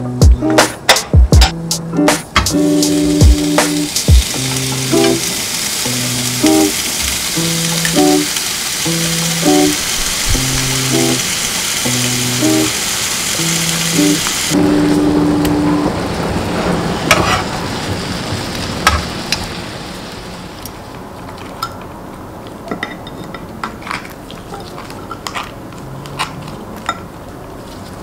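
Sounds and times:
sharp knocks in pan: 0.5s - 2.6s
ribs sizzling in a hot pan: 2.6s - 15.7s.

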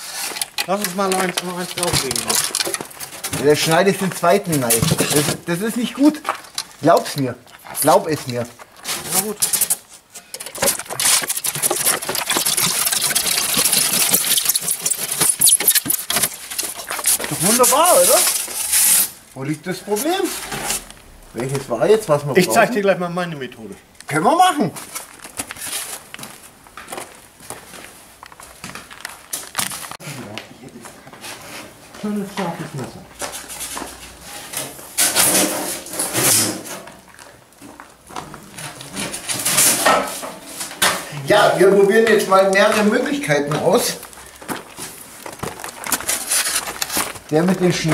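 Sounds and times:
wire cutting through foam board: 10.6s - 16.3s.

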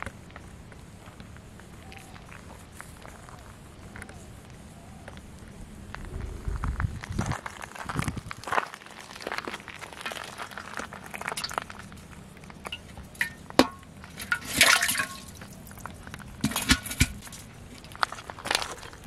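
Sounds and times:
clinks against metal pot: 12.6s - 15.4s, 16.4s - 17.3s
fish splashing in water: 14.1s - 15.8s.

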